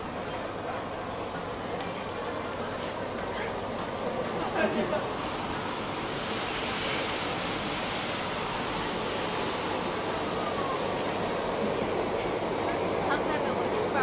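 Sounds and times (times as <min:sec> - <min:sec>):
gas burners hissing: 0:00.0 - 0:14.0.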